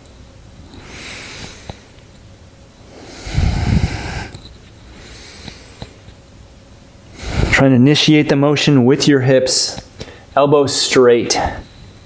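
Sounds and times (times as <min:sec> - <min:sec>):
person breathing deeply: 0:00.7 - 0:02.0, 0:02.9 - 0:06.1, 0:07.1 - 0:07.6, 0:10.0 - 0:10.4.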